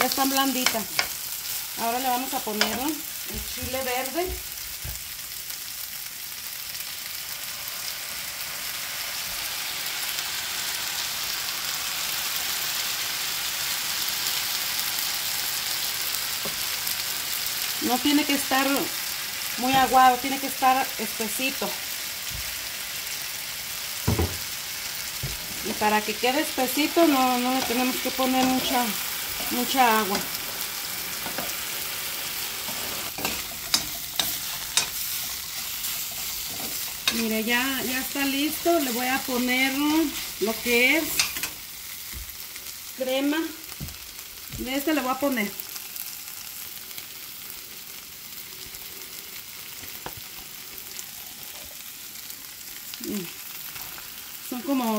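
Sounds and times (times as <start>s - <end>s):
potatoes sizzling in a pan: 0.0s - 54.9s
spoon stirring food: 32.7s - 37.2s.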